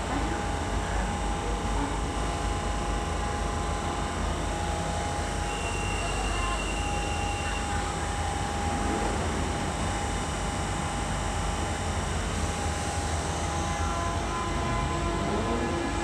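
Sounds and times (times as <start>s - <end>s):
underground train rumbling: 0.0s - 16.0s
train motor whine: 3.6s - 16.0s.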